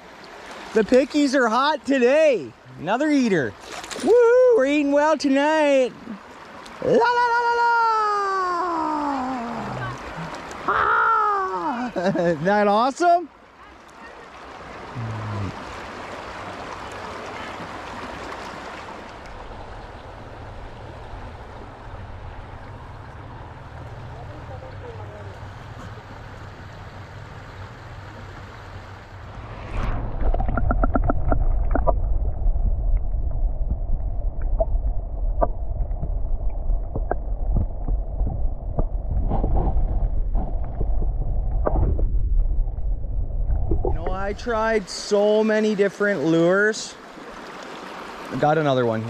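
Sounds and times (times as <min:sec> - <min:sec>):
river water rushing over rocks: 0:13.6 - 0:29.5, 0:43.8 - 0:49.0
steady low rumble: 0:19.2 - 0:45.0
crackling flurry: 0:29.3 - 0:44.1.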